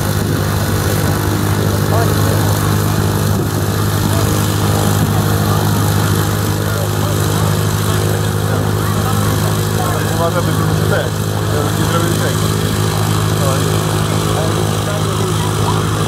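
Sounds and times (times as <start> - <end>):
faint voices: 0.0 - 16.0
light aircraft engine droning: 0.0 - 16.0.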